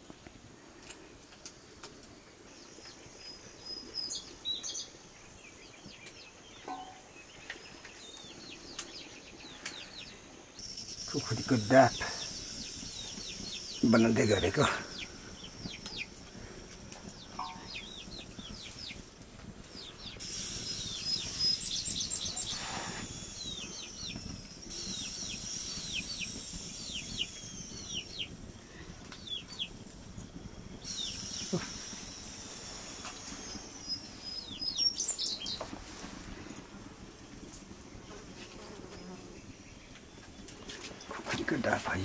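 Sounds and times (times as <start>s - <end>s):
birds chirping: 2.0s - 42.0s
high whistle-like tone: 20.2s - 28.4s, 30.8s - 34.8s.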